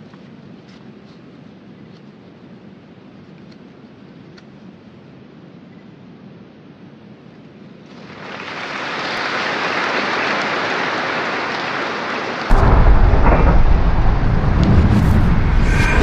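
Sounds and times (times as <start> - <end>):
rushing rain-like noise: 6.6 - 16.0
heavy rumbling boom: 12.5 - 16.0.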